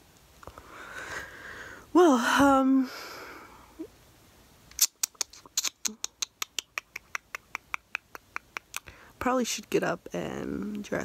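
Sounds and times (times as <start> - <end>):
rapid sharp clicks: 4.8 - 8.9.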